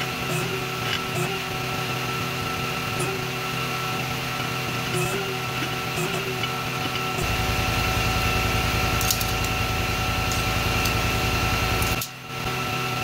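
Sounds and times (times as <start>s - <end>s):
steady mechanical hum: 0.0s - 13.0s
heavy low rumble: 7.2s - 12.0s.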